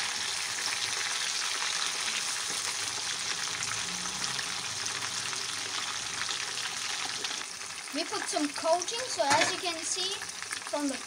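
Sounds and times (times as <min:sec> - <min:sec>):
fish frying in hot oil: 0:00.0 - 0:11.0.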